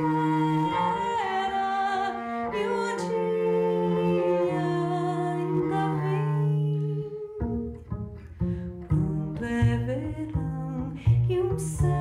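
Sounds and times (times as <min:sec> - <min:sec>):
woman singing slow melody: 0:00.0 - 0:07.5
bowed double bass: 0:00.0 - 0:12.0.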